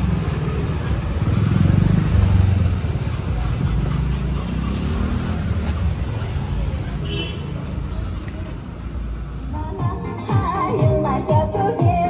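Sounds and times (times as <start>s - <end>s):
motor scooter passing: 0.0s - 8.1s
street traffic rumble: 0.0s - 12.0s.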